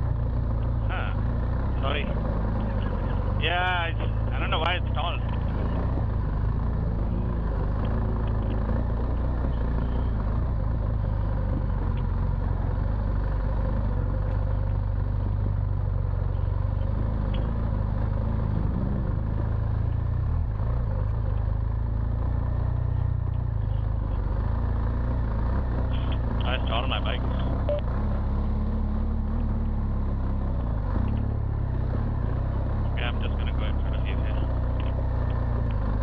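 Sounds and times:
motorcycle engine running: 0.0s - 36.0s.

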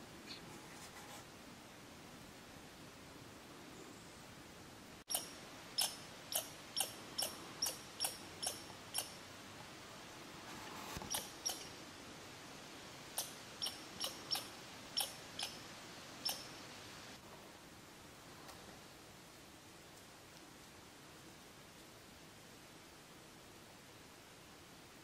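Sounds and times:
squirrel chip calls: 5.1s - 9.3s, 11.1s - 11.8s, 13.1s - 16.6s.

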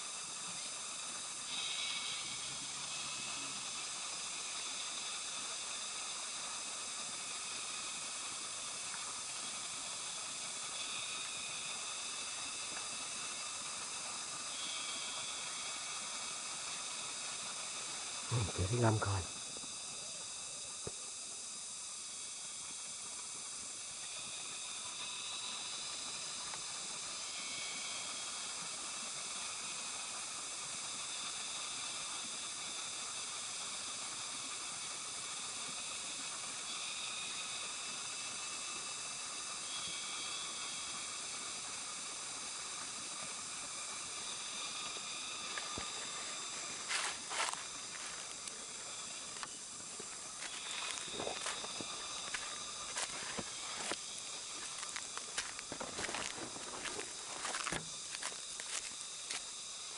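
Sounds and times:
high-pitched insect chorus: 0.0s - 59.9s
footsteps crunching on dry leaves: 46.7s - 48.4s, 50.4s - 59.5s.

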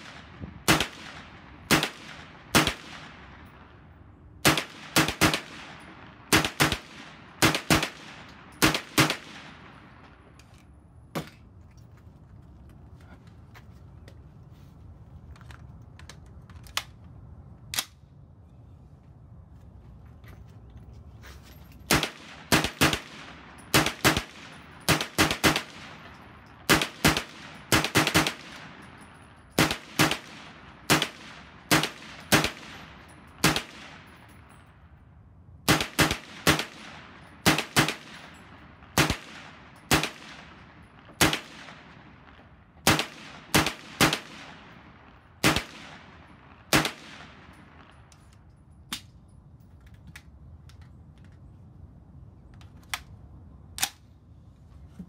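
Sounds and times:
carbine firing shots: 0.0s - 3.6s, 4.4s - 10.2s, 21.9s - 34.1s, 35.7s - 48.0s.

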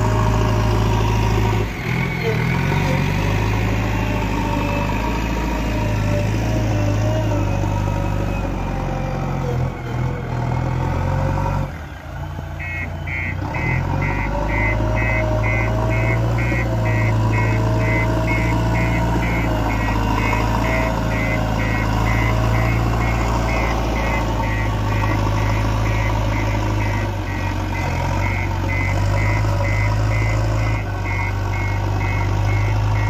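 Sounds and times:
diesel engine running: 0.0s - 33.0s
high beeping alarm: 12.6s - 33.0s.

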